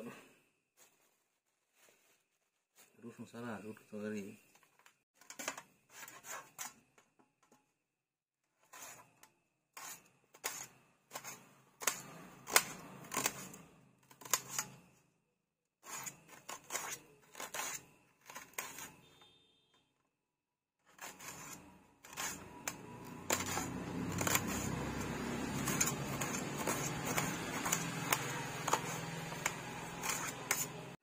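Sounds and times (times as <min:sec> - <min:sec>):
knife slicing onion: 0:08.6 - 0:14.9, 0:15.8 - 0:19.4, 0:20.9 - 0:31.0.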